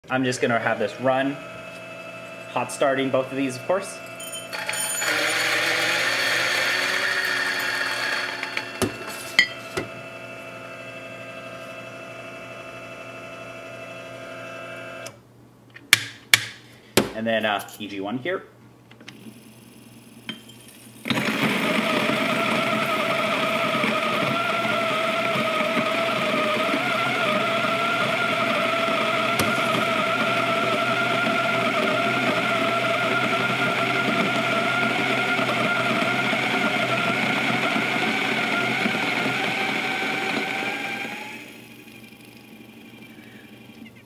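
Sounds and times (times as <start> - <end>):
coffee grinder grinding beans: 0.5 - 10.1, 19.1 - 43.8.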